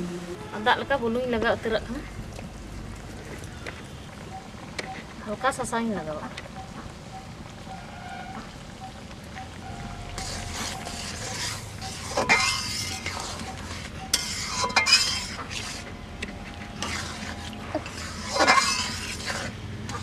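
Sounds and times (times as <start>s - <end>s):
metal ladle scraping wok: 9.7s - 20.0s.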